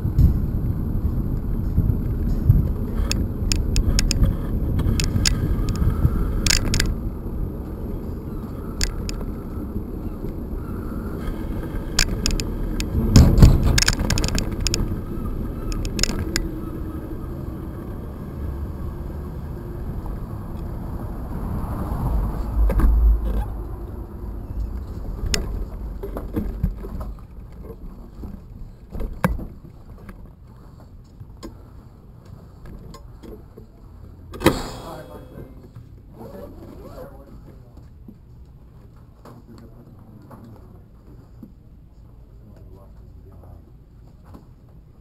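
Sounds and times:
bicycle tyres rumbling on bricks: 0.0s - 17.3s
wind on microphone: 0.0s - 18.9s
clicks and rattles: 3.0s - 5.8s, 6.4s - 6.9s, 11.9s - 14.9s, 15.7s - 16.4s.

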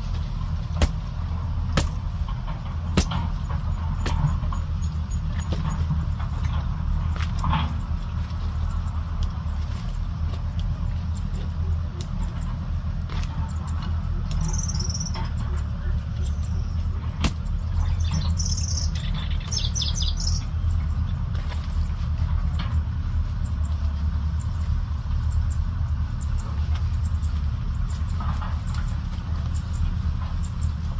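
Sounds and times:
low rumble: 0.0s - 30.9s
bird chirping: 13.4s - 30.9s.

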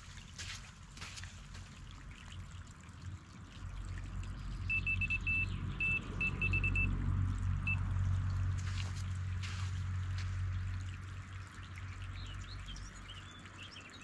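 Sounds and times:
bite alarm beeps: 4.7s - 6.9s.

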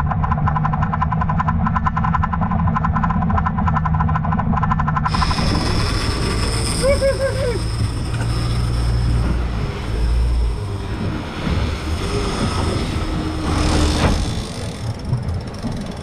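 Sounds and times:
boat engine running: 0.0s - 16.0s
rushing wind: 4.8s - 16.0s.

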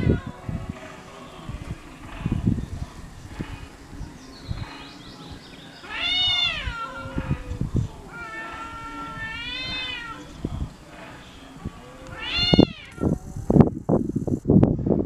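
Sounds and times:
cats yowling: 0.0s - 0.4s, 5.8s - 10.4s, 11.8s - 13.2s.

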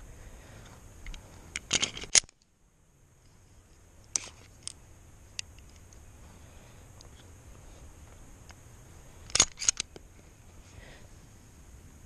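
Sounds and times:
pistol metallic clicks: 1.0s - 2.5s, 9.3s - 10.0s.

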